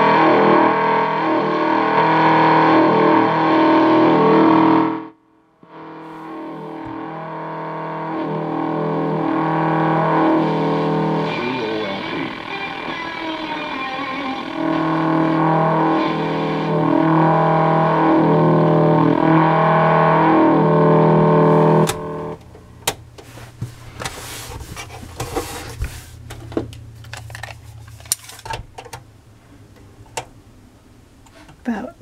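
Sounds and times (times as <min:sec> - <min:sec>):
guitar music from radio speaker: 0:00.0 - 0:22.4
radio switch click: 0:21.8 - 0:22.1.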